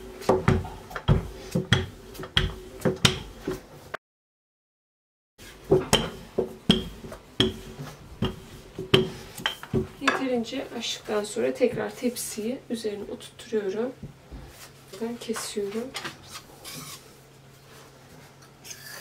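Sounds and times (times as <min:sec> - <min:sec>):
rolling pin knocking: 0:00.2 - 0:03.4, 0:05.7 - 0:10.2.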